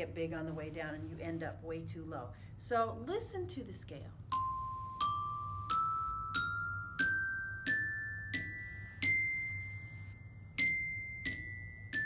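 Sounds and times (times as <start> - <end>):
glockenspiel playing a scale: 4.3 - 12.0.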